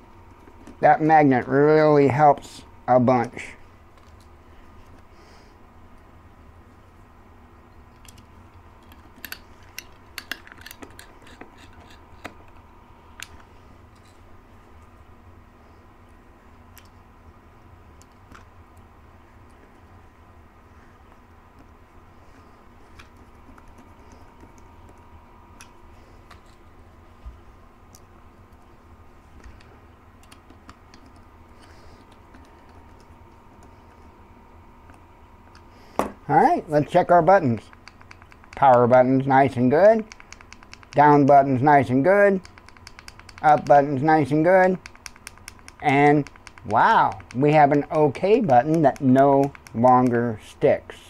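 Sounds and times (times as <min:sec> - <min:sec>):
screwdriver clicking on screws: 0:42.4 - 0:43.8, 0:44.8 - 0:50.2.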